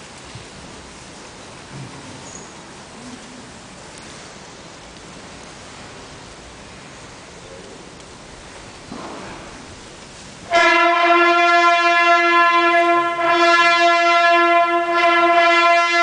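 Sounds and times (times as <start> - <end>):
bugles holding a long note: 10.5 - 16.0.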